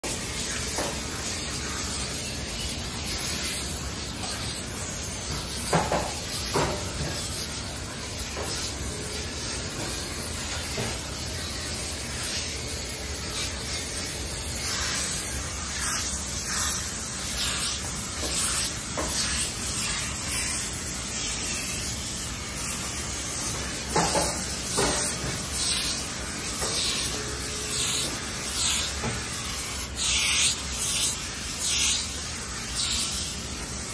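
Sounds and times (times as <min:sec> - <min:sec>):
steam iron hissing: 0:00.0 - 0:33.9.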